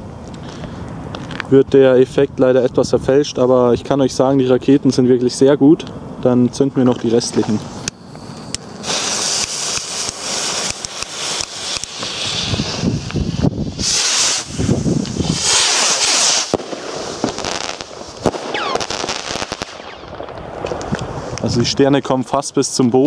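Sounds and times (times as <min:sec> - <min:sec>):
rockets launching with hiss: 0:07.4 - 0:21.7
firework pops and cracks: 0:07.6 - 0:21.5.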